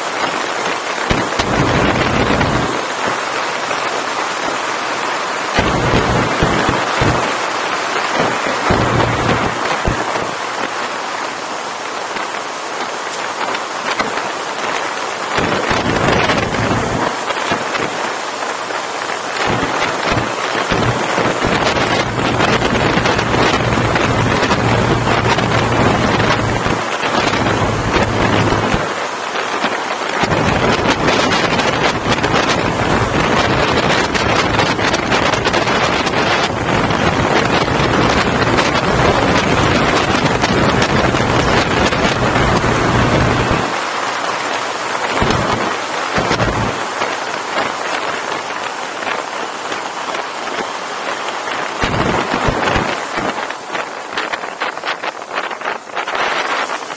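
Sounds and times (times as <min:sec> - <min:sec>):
wind rushing over microphone: 0:00.0 - 0:56.9
low motorcycle engine hum: 0:01.2 - 0:02.8, 0:05.6 - 0:10.7, 0:15.4 - 0:18.0, 0:19.4 - 0:29.0, 0:30.2 - 0:43.8, 0:45.2 - 0:46.8.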